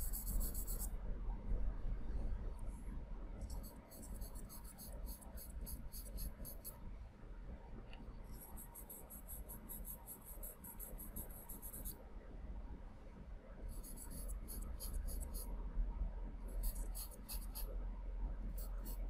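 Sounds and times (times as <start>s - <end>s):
pencil scratching on paper: 0.0s - 0.9s, 3.5s - 6.8s, 8.4s - 11.9s, 13.7s - 15.5s, 16.6s - 17.7s, 18.6s - 19.0s.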